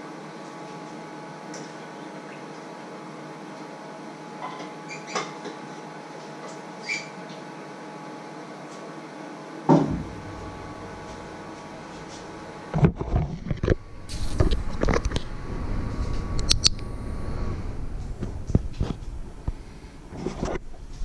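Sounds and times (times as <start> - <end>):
room hum: 0.0 - 21.0
heavy thump: 9.7 - 13.2.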